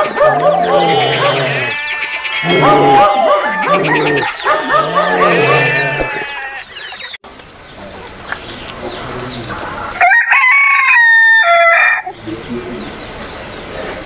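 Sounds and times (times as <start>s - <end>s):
rooster crowing: 0.0s - 6.8s, 10.0s - 12.2s.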